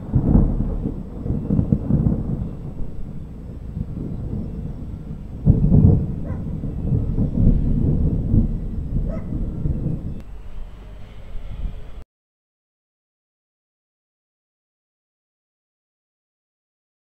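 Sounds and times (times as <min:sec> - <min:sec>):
thunder rumbling: 0:00.0 - 0:12.0.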